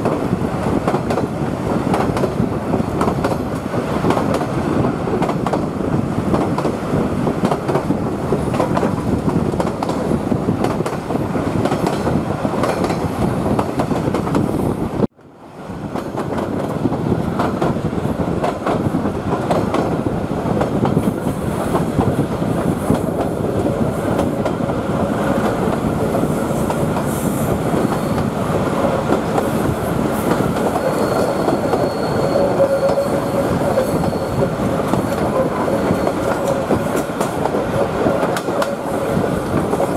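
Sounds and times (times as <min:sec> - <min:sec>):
train wheels clickety-clack: 0:00.0 - 0:14.8, 0:15.8 - 0:39.9
wheel squeal: 0:30.7 - 0:36.8.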